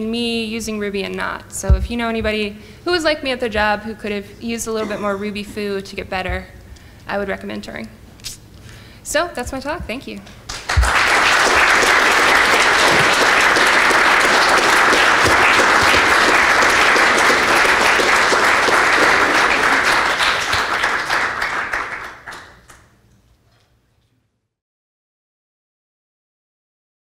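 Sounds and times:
audience applauding: 0:10.5 - 0:22.9.

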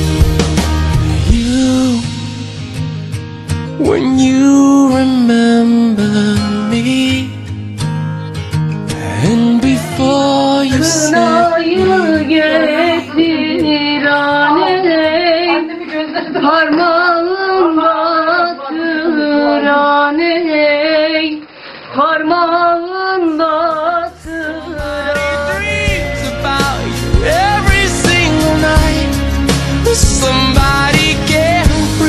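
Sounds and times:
woman singing: 0:00.5 - 0:02.7, 0:09.2 - 0:21.4, 0:22.0 - 0:29.2
instrumental accompaniment: 0:24.1 - 0:32.0.

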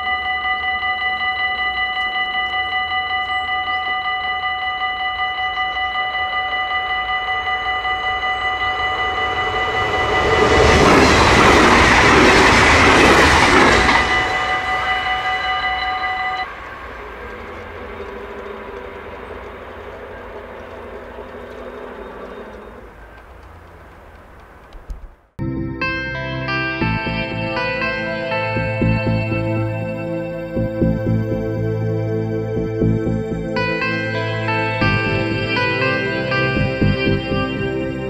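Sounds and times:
level-crossing warning bell ringing: 0:00.0 - 0:23.4, 0:25.8 - 0:38.0
passenger train rushing past: 0:00.0 - 0:24.4, 0:26.8 - 0:38.0
barrier arms rising with mechanical hum: 0:07.6 - 0:24.7.

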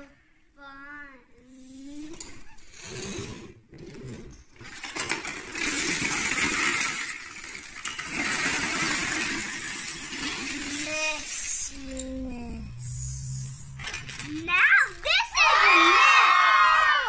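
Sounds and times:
plastic bricks clattering on floor: 0:04.6 - 0:11.4.

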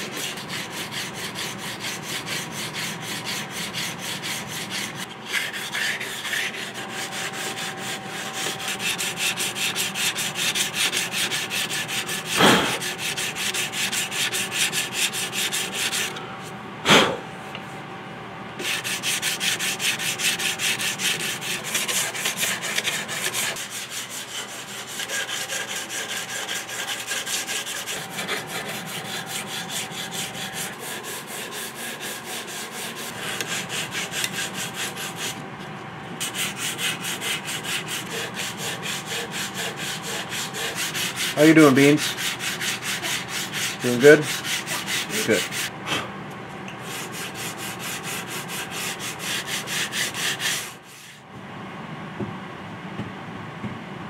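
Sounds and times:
sandpaper rubbing on wood: 0:00.0 - 0:16.1, 0:18.6 - 0:35.4, 0:36.2 - 0:45.7, 0:46.8 - 0:51.2
sharp knocks: 0:12.4 - 0:12.8.

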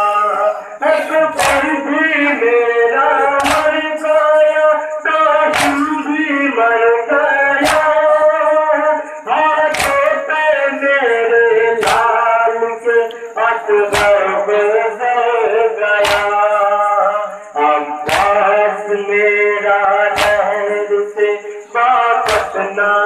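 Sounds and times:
man chanting through loudspeakers: 0:00.0 - 0:23.0
people striking chests in unison: 0:01.0 - 0:02.1, 0:03.1 - 0:06.4, 0:07.4 - 0:08.4, 0:09.6 - 0:10.4, 0:11.8 - 0:12.5, 0:13.9 - 0:14.6, 0:16.0 - 0:16.8, 0:18.0 - 0:18.7, 0:20.0 - 0:20.8, 0:22.1 - 0:22.6.

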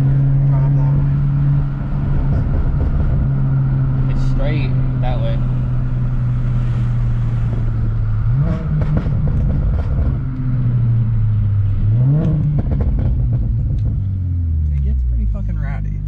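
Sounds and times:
car engine revving: 0:00.0 - 0:16.0
exhaust pops and crackles: 0:01.7 - 0:05.5, 0:07.4 - 0:10.8, 0:12.1 - 0:16.0.

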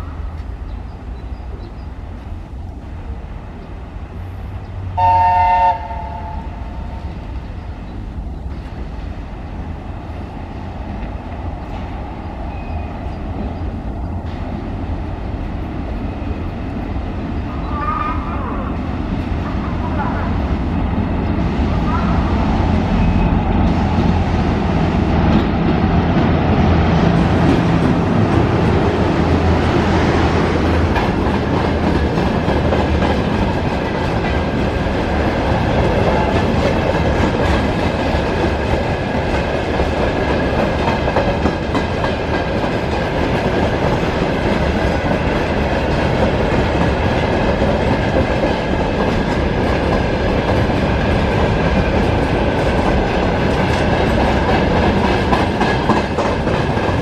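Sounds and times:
electric locomotive hum: 0:00.0 - 0:57.0
freight wagons rumbling by: 0:06.0 - 0:57.0
wheels clicking over rail joints: 0:27.4 - 0:57.0.

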